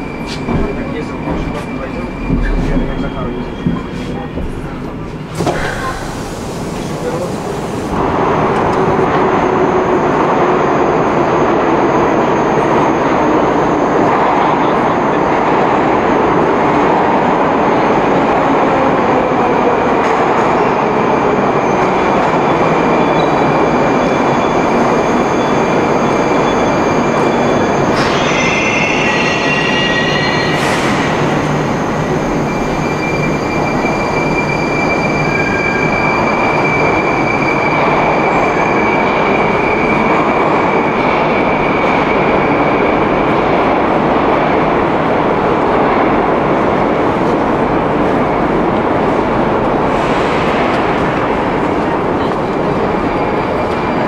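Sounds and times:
train rumble and rail noise: 0.0s - 54.0s
high wheel squeals: 21.6s - 42.7s.

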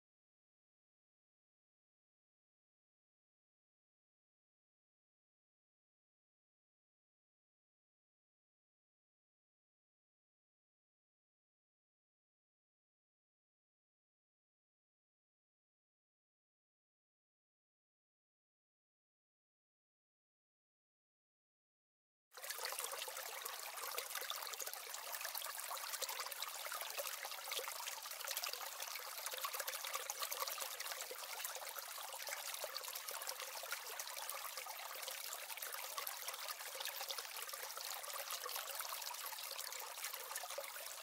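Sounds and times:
trickle of running water: 22.4s - 41.0s.

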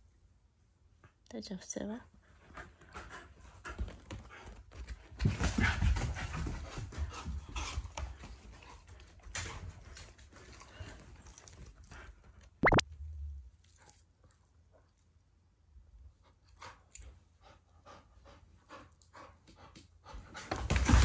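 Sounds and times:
dog panting: 2.3s - 12.4s, 16.2s - 20.6s
small clicks and rustles: 8.0s - 12.6s.

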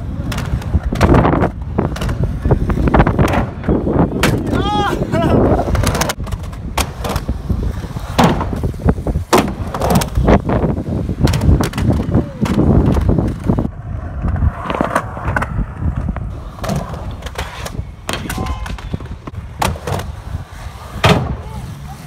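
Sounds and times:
skateboard wheels rolling on concrete: 0.0s - 22.0s
skateboard clacking on ground: 5.6s - 7.3s, 11.2s - 20.2s.

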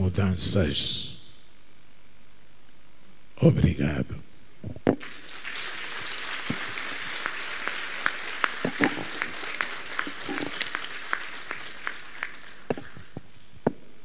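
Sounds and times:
audience applauding: 5.0s - 13.4s.

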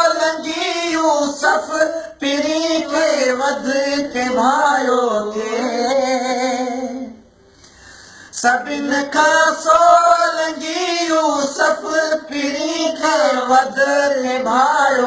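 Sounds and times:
man singing: 0.0s - 7.2s, 8.3s - 15.0s.

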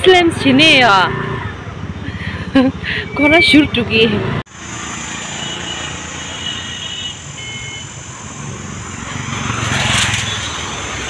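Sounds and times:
motorbike passing: 0.0s - 11.0s
street traffic: 0.0s - 11.0s.

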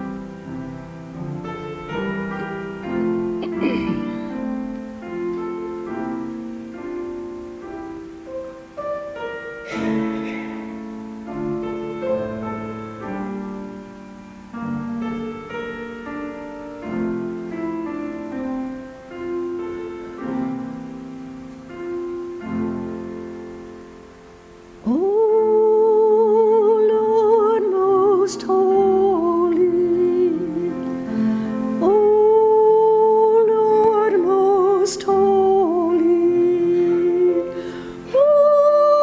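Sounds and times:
slow piano chords and melody: 0.0s - 39.0s.

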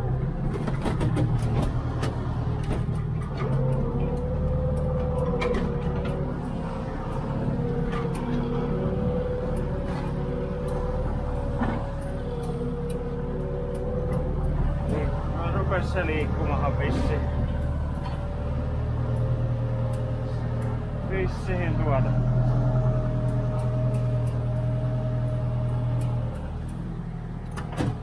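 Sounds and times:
tractor diesel engine running: 0.0s - 28.0s
knocks and rattles: 0.4s - 12.6s
wavering whine: 3.2s - 27.0s.

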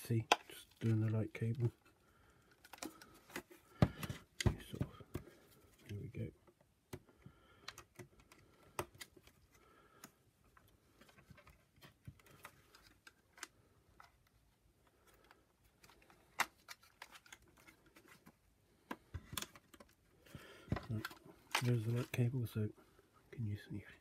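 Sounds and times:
plastic parts clicking: 6.9s - 14.3s, 15.0s - 20.0s.

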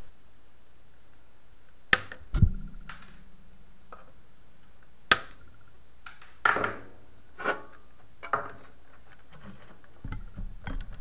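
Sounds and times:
side cutters snipping wire: 2.9s - 3.3s, 6.1s - 6.4s.

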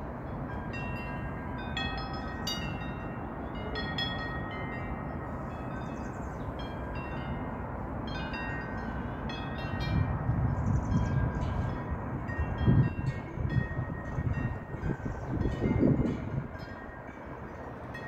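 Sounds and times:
metal wind chime ringing: 0.4s - 10.2s.

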